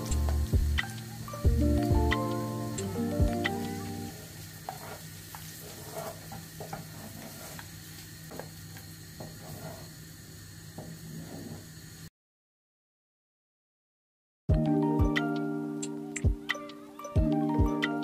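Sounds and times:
steady low hum: 0.0 - 5.6
spatula scraping a saucepan: 4.2 - 7.7, 9.2 - 10.0, 11.0 - 11.7.

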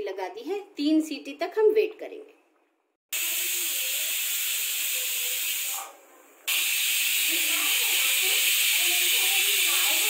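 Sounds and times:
pressure cooker whistling: 6.5 - 10.0.

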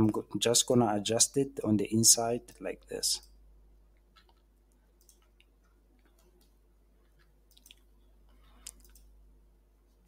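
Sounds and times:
faint steady hum: 0.0 - 10.0
computer mouse clicks: 4.0 - 9.2.

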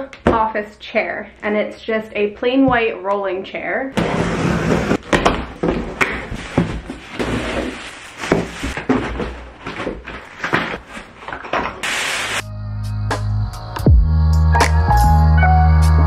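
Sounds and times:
cardboard and plastic rustling: 4.0 - 11.8.

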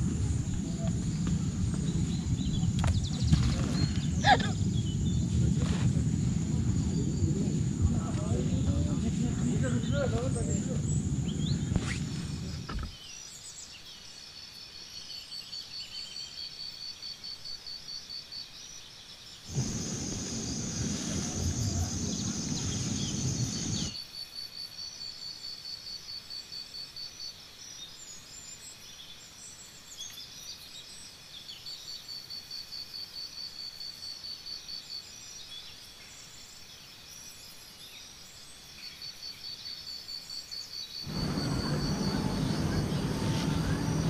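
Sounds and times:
insects chirping in pulsing rhythm: 4.0 - 12.8, 19.5 - 27.7, 38.7 - 44.0
low rushing noise: 19.5 - 23.9, 41.1 - 44.0.

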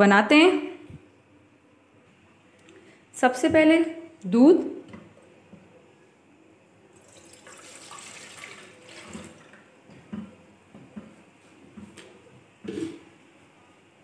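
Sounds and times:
milk pouring into metal pot: 6.9 - 9.6.

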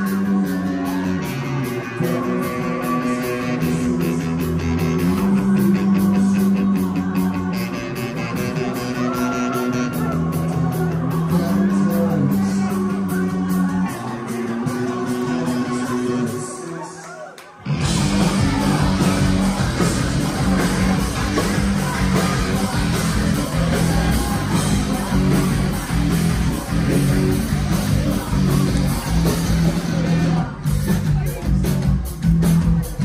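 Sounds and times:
live rock band playing: 0.0 - 16.9, 17.6 - 33.0
person singing: 0.0 - 33.0.

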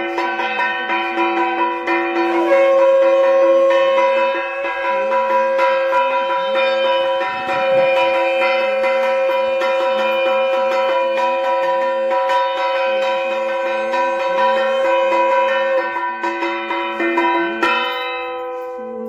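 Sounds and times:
bell tones ringing: 0.0 - 19.0
long steady note: 0.0 - 19.0.

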